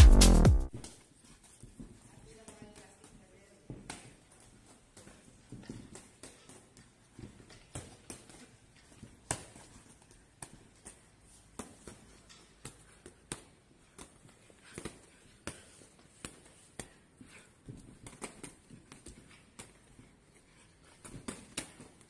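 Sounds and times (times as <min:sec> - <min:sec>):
footwork on ring canvas: 0:00.0 - 0:22.0
boxing gloves punches: 0:17.6 - 0:19.8, 0:20.9 - 0:22.0.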